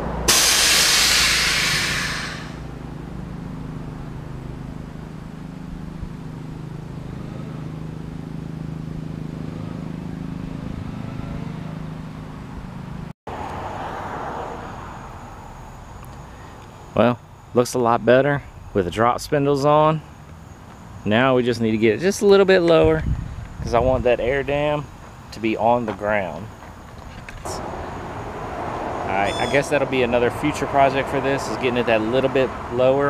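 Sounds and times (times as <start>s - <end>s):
car engine idling: 0.2s - 7.0s
loud hiss: 0.3s - 2.7s.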